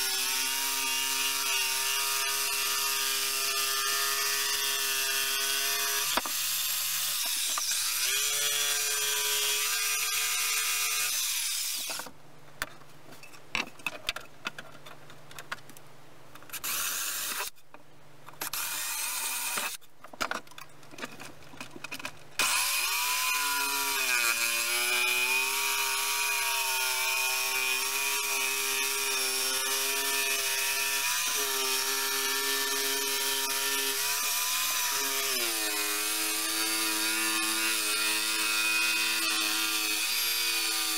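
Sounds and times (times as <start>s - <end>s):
electric jigsaw cutting wood: 0.0s - 12.0s, 18.4s - 19.8s, 22.4s - 40.9s
knocks and handling: 11.9s - 16.6s, 19.6s - 22.4s.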